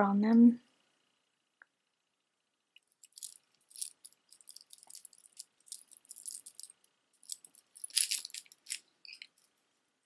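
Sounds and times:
bracelet beads clicking and jingling: 2.9s - 9.6s.

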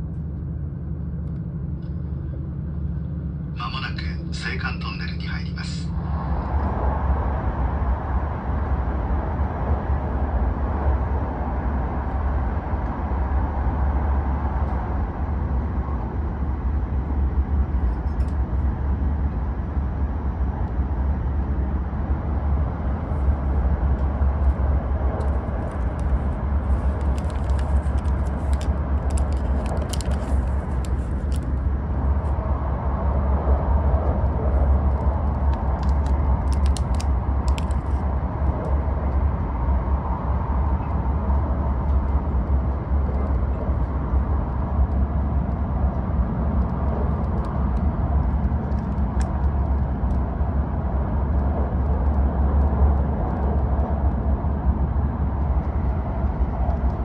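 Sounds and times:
train cabin rumble and rush: 0.0s - 57.0s
crinkling of packaging: 25.6s - 31.6s, 35.8s - 38.0s.

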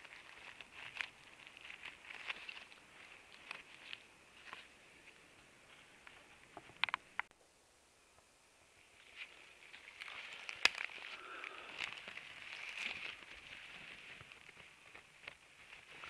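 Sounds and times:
rustling in leaf litter: 0.0s - 4.7s, 9.0s - 16.0s.

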